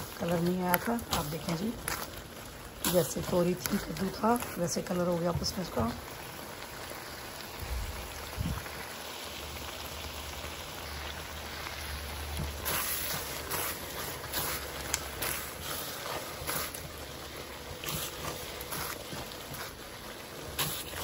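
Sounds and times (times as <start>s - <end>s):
mixture sizzling in a wok: 0.0s - 21.0s
spatula scraping a wok: 12.5s - 21.0s.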